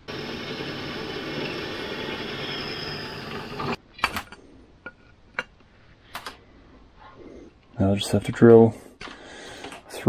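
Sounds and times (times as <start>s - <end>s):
drill press cutting metal: 0.0s - 3.8s.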